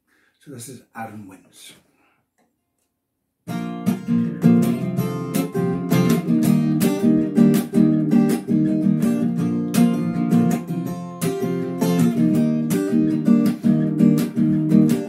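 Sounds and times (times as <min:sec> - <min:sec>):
acoustic guitar strumming chords: 0:03.5 - 0:15.0.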